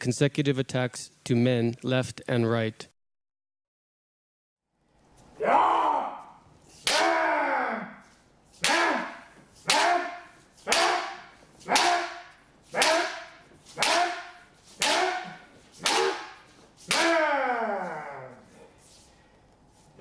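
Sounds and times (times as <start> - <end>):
shouted kiai: 5.4 - 18.5
bamboo sword cracking on armour: 6.8 - 7.3, 8.6 - 17.3.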